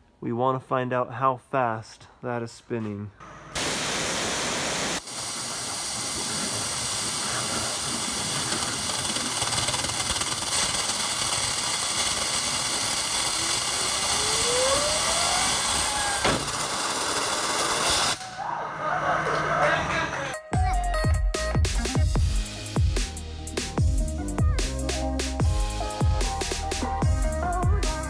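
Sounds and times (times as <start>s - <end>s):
waterjet hissing: 3.6s - 18.2s
sharp crack: 7.3s - 18.4s
faint rising whine: 12.1s - 19.4s.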